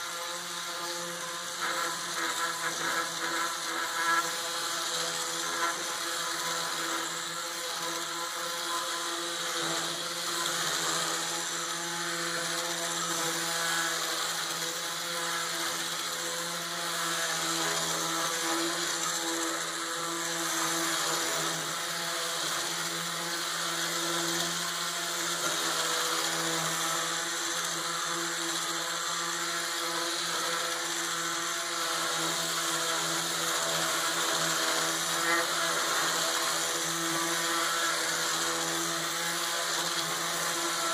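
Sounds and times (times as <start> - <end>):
sander motor hum: 0.0 - 40.9
sandpaper hissing on wood: 0.0 - 40.9.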